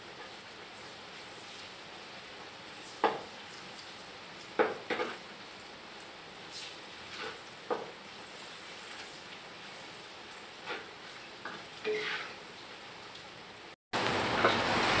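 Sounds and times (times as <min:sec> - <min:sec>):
light frying sizzle: 0:00.0 - 0:15.0
spatula scraping wok: 0:00.2 - 0:01.8, 0:02.7 - 0:05.3, 0:06.5 - 0:12.6
spatula knocking on wok: 0:04.6 - 0:05.1.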